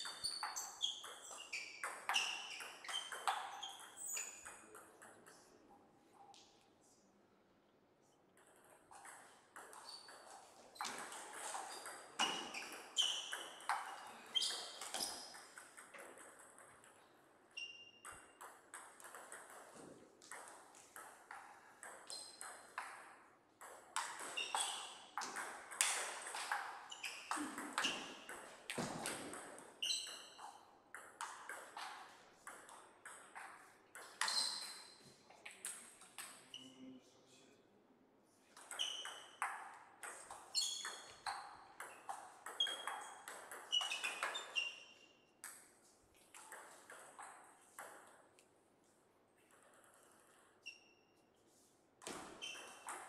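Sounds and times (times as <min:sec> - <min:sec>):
ball bouncing on table: 0:00.0 - 0:05.4, 0:08.4 - 0:17.0, 0:18.0 - 0:36.4, 0:38.6 - 0:44.6, 0:46.3 - 0:48.2, 0:52.0 - 0:53.0.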